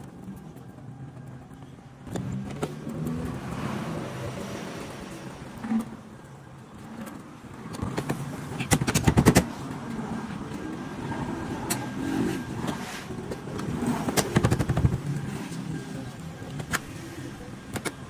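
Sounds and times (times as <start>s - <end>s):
sharp clicks and knocks: 6.8s - 10.7s, 12.6s - 15.3s.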